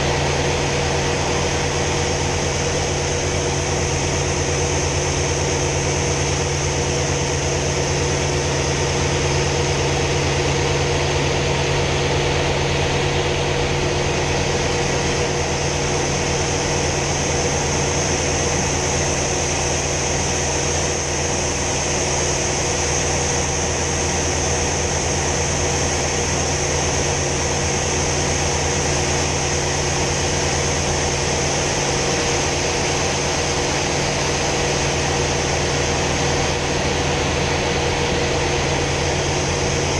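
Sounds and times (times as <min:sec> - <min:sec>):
radial aircraft engine running: 0:00.0 - 0:39.9.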